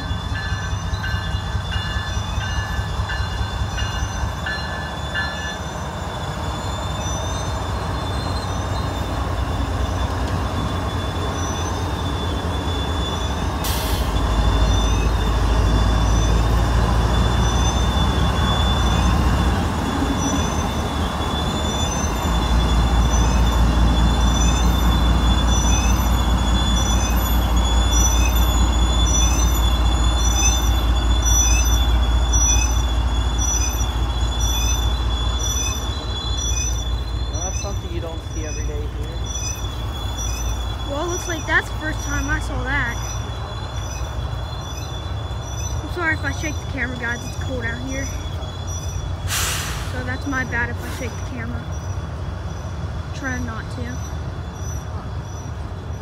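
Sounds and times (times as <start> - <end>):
diesel locomotive engine rumbling: 0.0 - 56.0
wheels squealing on rail: 0.0 - 56.0
short hiss: 49.3 - 50.0.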